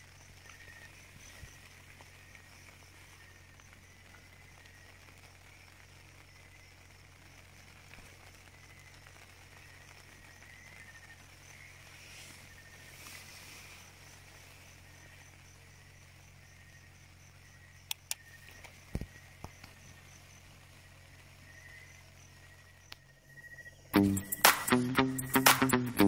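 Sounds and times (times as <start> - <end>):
crickets chirping: 0.0 - 25.9
sharp clicks: 17.8 - 19.8, 24.0 - 26.0.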